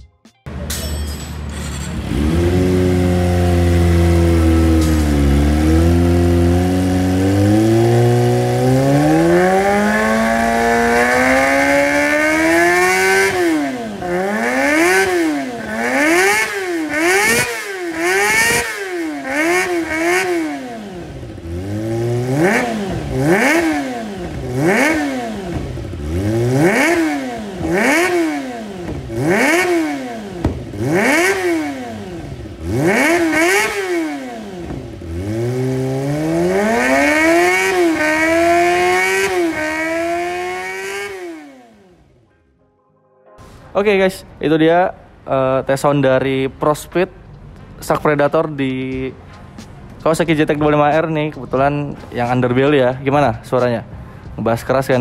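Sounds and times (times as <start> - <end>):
sport bike engine revving: 1.8 - 42.2.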